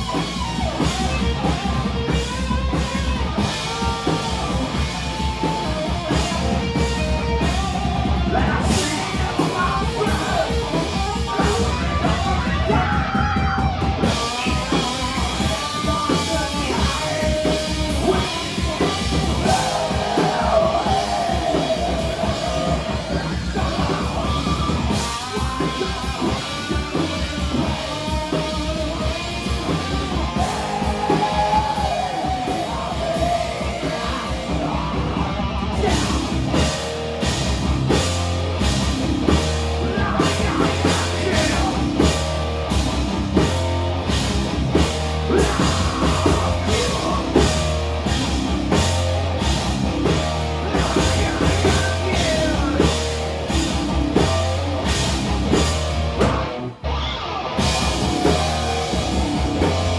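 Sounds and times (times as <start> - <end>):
distorted guitars: 0.0 - 59.9
drum kit: 0.0 - 59.9
person yelling vocals: 8.2 - 14.8, 30.2 - 35.0, 39.8 - 42.1, 45.3 - 47.6.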